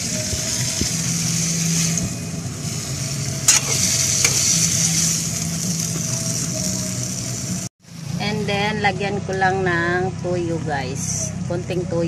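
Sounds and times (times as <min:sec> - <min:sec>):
vegetables sizzling in a wok: 0:00.0 - 0:08.8.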